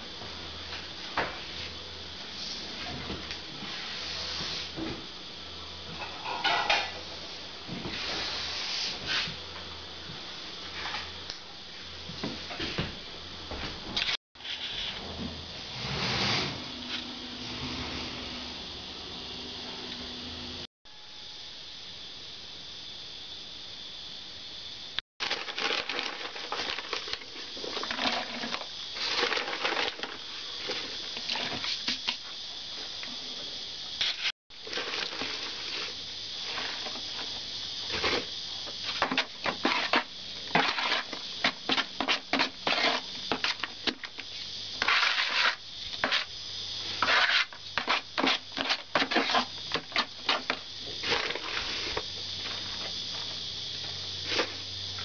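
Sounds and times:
hand mixing powder in bucket: 0:14.4 - 0:18.7, 0:25.2 - 0:32.2, 0:34.0 - 0:53.3
steady high hiss: 0:14.4 - 0:25.0, 0:28.4 - 0:55.0.

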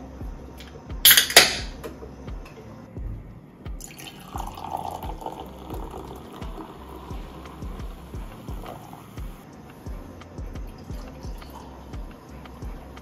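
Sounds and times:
cider pouring into glass and foaming: 0:03.8 - 0:09.3.

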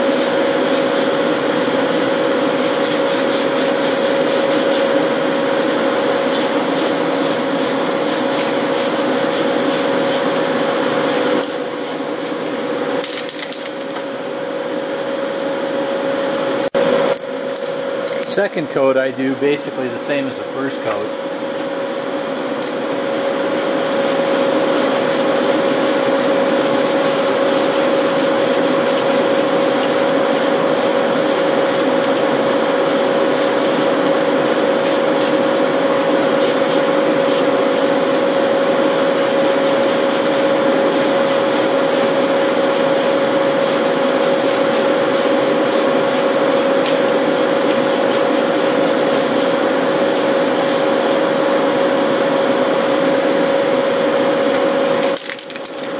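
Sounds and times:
fans humming: 0:00.0 - 0:55.9
spray can hissing: 0:00.1 - 0:04.9, 0:06.3 - 0:10.3, 0:23.1 - 0:35.4, 0:36.4 - 0:38.2, 0:38.9 - 0:51.3.

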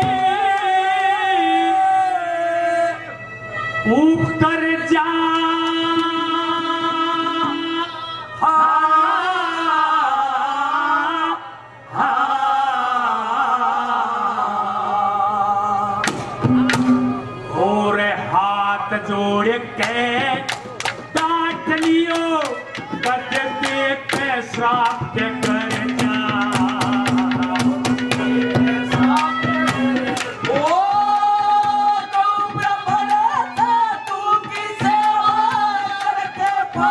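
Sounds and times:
man singing into a microphone: 0:00.0 - 0:16.0, 0:17.5 - 0:36.9
quick drum strokes: 0:16.0 - 0:17.4, 0:19.8 - 0:36.9.

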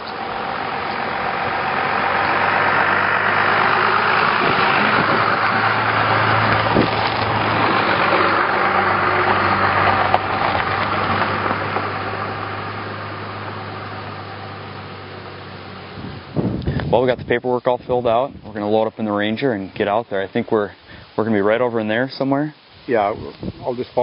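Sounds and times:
tyres crunching on gravel: 0:00.0 - 0:15.5
truck engine hum: 0:00.0 - 0:18.5.

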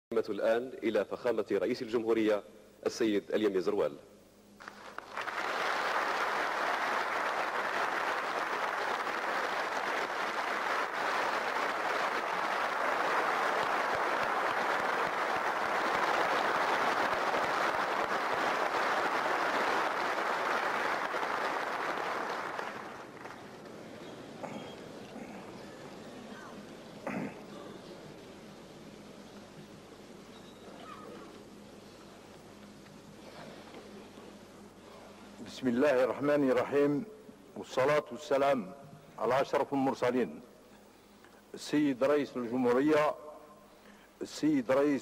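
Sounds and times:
large audience applauding: 0:04.6 - 0:23.8.

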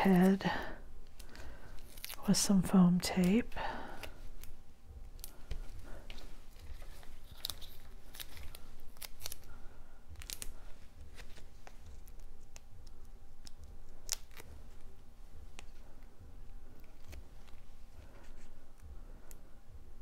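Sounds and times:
tape and cardstock clicks and crinkles: 0:00.0 - 0:02.5, 0:03.1 - 0:14.9.

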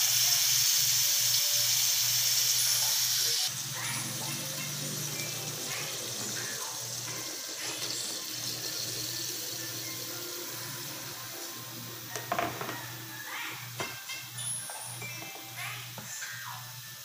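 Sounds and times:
meat and onions sizzling in pan: 0:00.0 - 0:17.0
spatula knocking against pan: 0:12.1 - 0:12.9.

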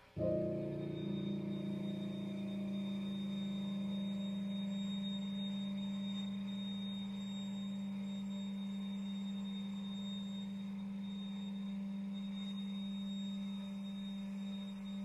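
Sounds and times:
faint high tone: 0:00.0 - 0:09.4
sustained low tone: 0:00.2 - 0:14.4.

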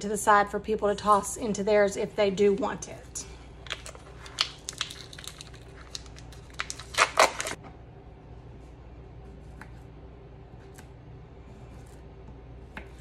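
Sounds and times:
plastic film tearing: 0:03.6 - 0:07.6.

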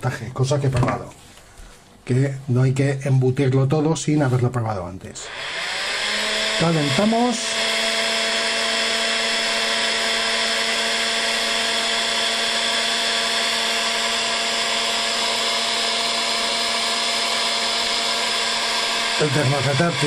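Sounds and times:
heat gun blowing air: 0:05.2 - 0:20.0.

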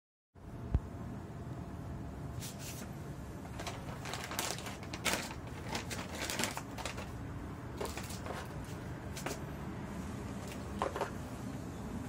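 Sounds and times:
low room hum: 0:00.4 - 0:12.0
paper rustling: 0:02.4 - 0:07.2, 0:07.8 - 0:09.4
plastic bag crinkling: 0:03.4 - 0:09.4.

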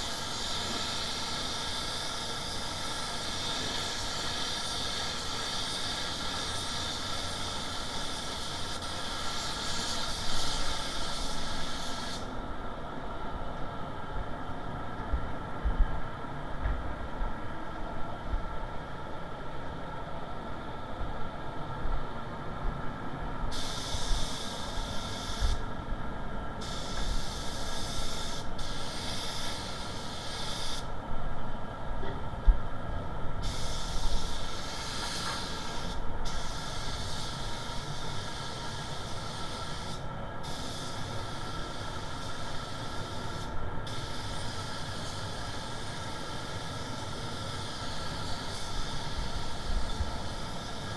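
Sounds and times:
paint spray gun hissing: 0:00.0 - 0:12.3, 0:23.5 - 0:25.6, 0:26.6 - 0:30.9, 0:33.4 - 0:50.9
ventilation drone: 0:00.0 - 0:50.9.

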